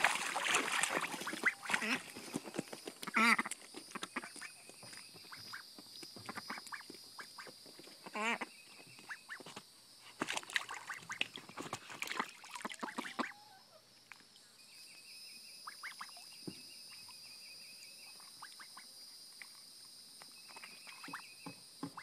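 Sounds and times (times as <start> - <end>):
ducks splashing in water: 0.0 - 4.4, 10.2 - 13.5
ducks dabbling with bills: 0.0 - 4.5, 10.1 - 13.4.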